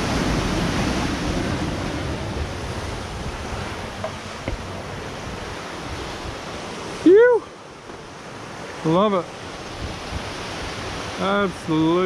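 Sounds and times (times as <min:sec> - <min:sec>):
surf breaking on boulders: 0:00.0 - 0:05.6
wind buffeting microphone: 0:00.0 - 0:08.7, 0:09.4 - 0:12.0.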